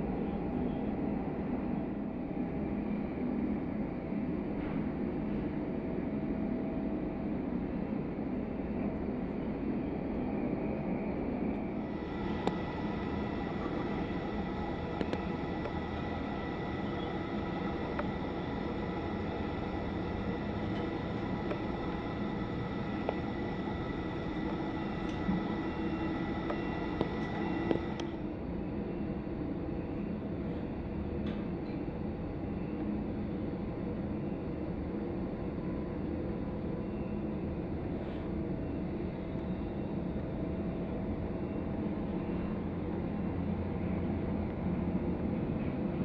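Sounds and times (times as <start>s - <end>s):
jet aircraft rumble: 0.0s - 34.2s
high whine: 11.7s - 28.4s.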